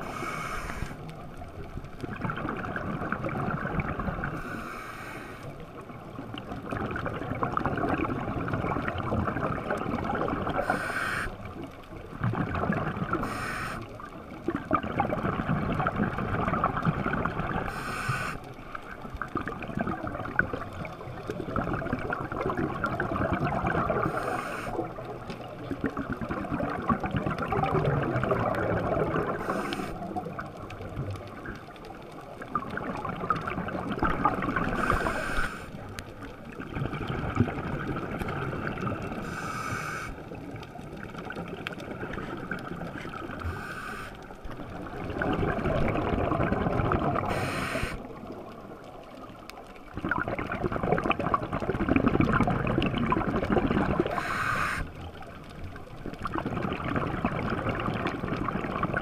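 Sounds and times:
regulator hiss: 0.0 - 1.0, 4.4 - 5.5, 10.6 - 11.4, 13.2 - 13.9, 17.7 - 18.4, 24.1 - 24.8, 29.4 - 30.0, 34.8 - 35.8, 39.2 - 40.2, 43.5 - 44.2, 47.3 - 48.1, 54.1 - 54.9
underwater regulator bubbling: 12.2 - 48.7, 49.9 - 59.0.

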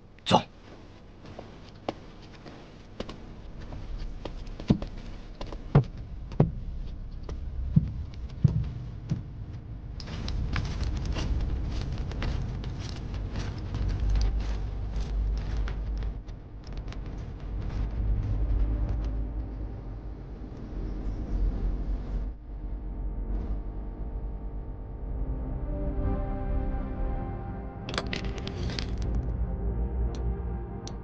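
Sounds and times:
footsteps: 0.5 - 19.7
low rumble: 3.1 - 31.0
knocks and thuds: 7.7 - 9.3.

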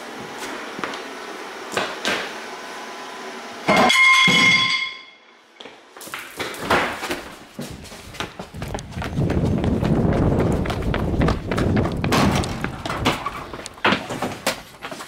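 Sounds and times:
footsteps on tile floor: 0.1 - 1.1, 5.6 - 15.0
loud ringing strike: 3.7 - 5.2.

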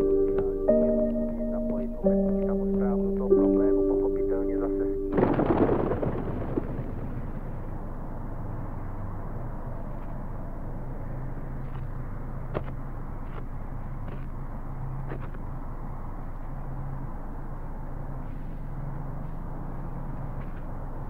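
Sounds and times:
music: 0.0 - 5.2
steady low hum: 0.0 - 11.6.

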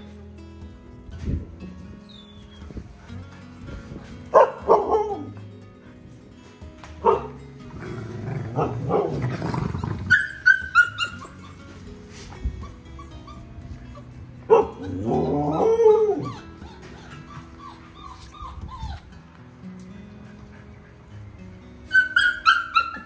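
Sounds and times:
background music: 0.0 - 23.0
puppies whimpering and yelping: 2.0 - 3.2, 8.5 - 19.3, 20.2 - 23.0
puppy whining: 2.0 - 3.2, 7.0 - 19.3, 20.2 - 23.0.

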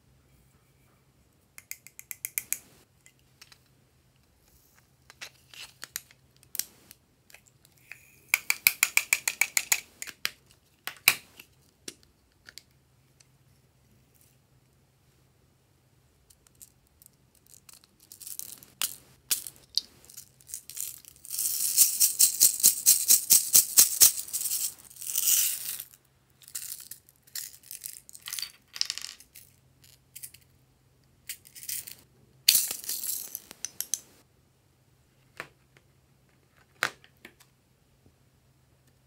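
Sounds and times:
plastic beads rattling in container: 17.3 - 28.5, 31.3 - 34.0
beads being poured out: 17.5 - 28.5, 31.5 - 34.0.

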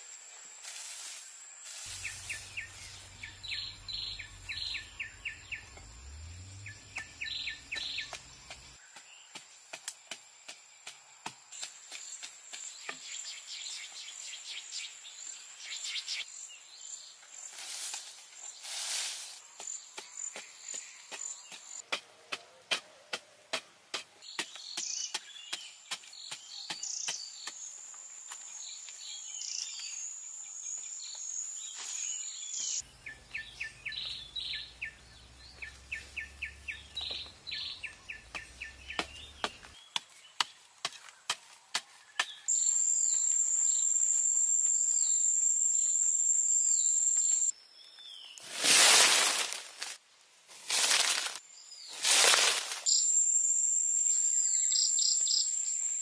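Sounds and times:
birds chirping: 1.9 - 9.6, 28.4 - 44.1
insects trilling: 42.5 - 47.5, 50.8 - 56.0.

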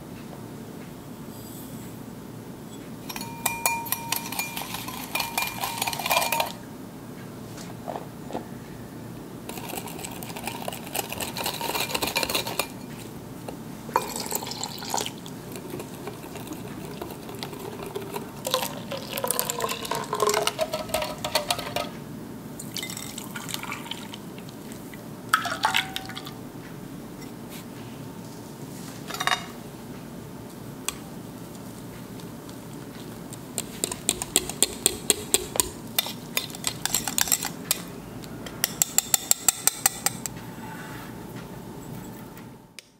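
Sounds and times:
whisk scraping ceramic bowl: 3.1 - 6.6, 9.5 - 13.0, 14.4 - 18.7, 33.6 - 37.8.

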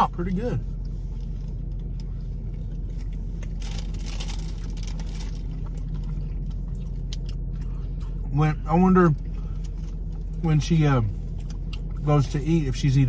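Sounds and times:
car cabin hum: 0.0 - 13.0
soft chewing: 0.8 - 8.3, 9.1 - 10.5, 11.2 - 12.1
food wrapper crinkling: 3.4 - 6.0.

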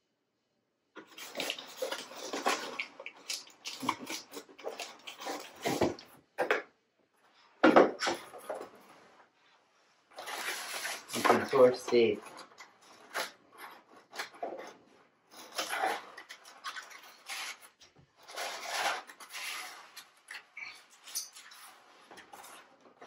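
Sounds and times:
cardboard rustling and scraping: 1.0 - 6.1, 10.0 - 23.0.

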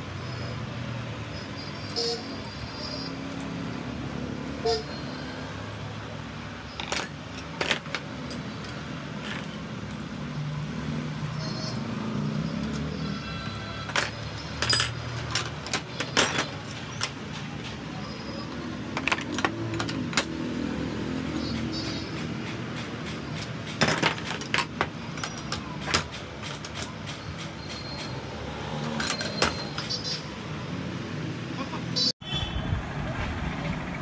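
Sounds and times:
low traffic hum: 0.0 - 34.0
metal clinks and clicks: 6.7 - 10.4, 13.8 - 17.8, 18.9 - 20.4, 21.9 - 28.2.

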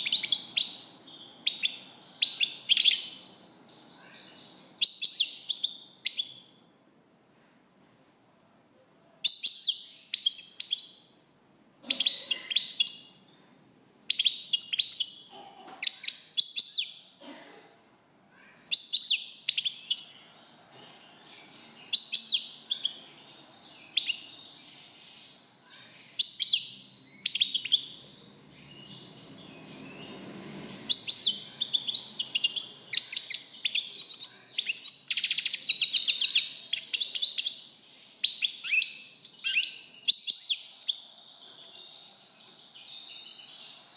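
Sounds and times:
goldfinch twittering song: 21.8 - 37.6.

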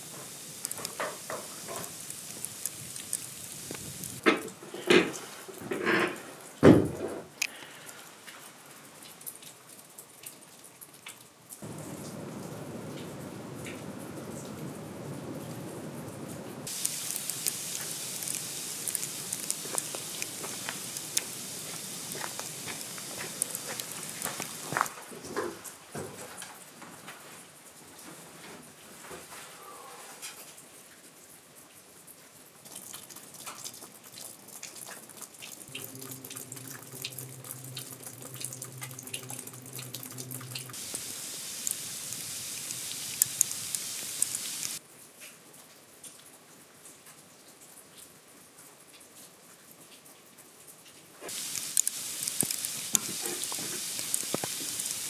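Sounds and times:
precipitation hissing and ticking: 0.0 - 6.3, 16.6 - 25.1, 32.7 - 44.8, 51.2 - 55.0
water dripping from eave: 0.0 - 26.8, 29.6 - 55.0
rain on a metal roof: 0.0 - 55.0
low steady hum: 35.7 - 43.4.

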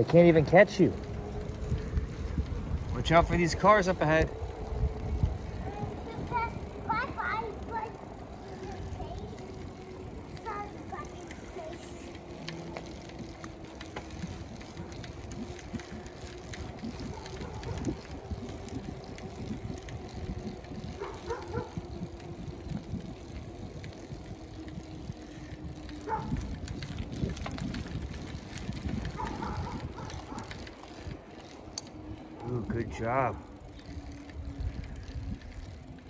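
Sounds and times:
bicycle rolling on asphalt: 0.0 - 36.0
wind noise on microphone: 1.0 - 7.8, 12.9 - 31.4, 33.7 - 36.0.

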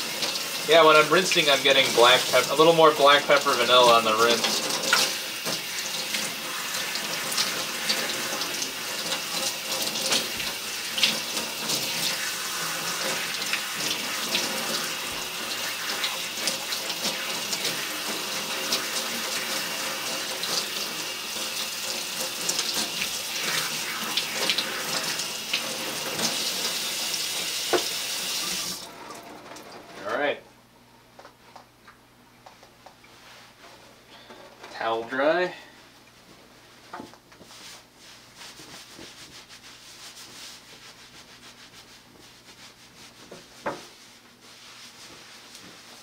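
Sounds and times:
water spraying from a hose: 0.0 - 28.8
water splashing into metal sink: 1.5 - 29.3.

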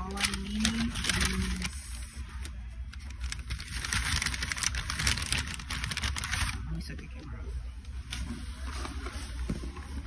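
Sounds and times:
paper bag rustling and crinkling: 0.0 - 6.9.

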